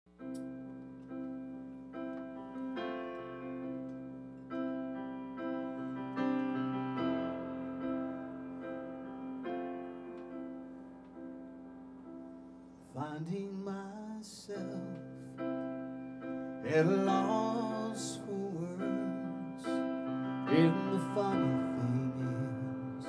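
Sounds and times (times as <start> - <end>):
slow piano chords: 0.1 - 23.0.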